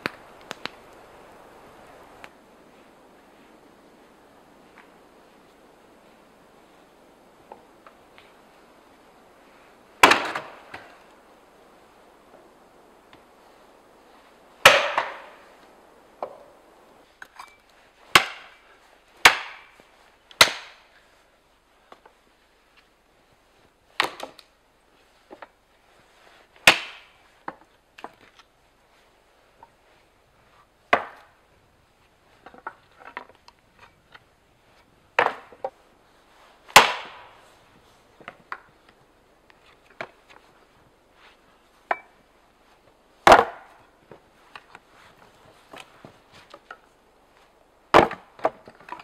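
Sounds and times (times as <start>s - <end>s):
axe chopping wood: 10.0s - 10.9s, 14.6s - 15.4s, 18.1s - 18.6s, 19.2s - 19.7s, 20.4s - 20.8s, 24.0s - 24.4s, 26.6s - 28.2s, 30.9s - 31.3s, 35.2s - 35.7s, 36.7s - 37.4s, 43.2s - 43.8s, 47.9s - 48.8s.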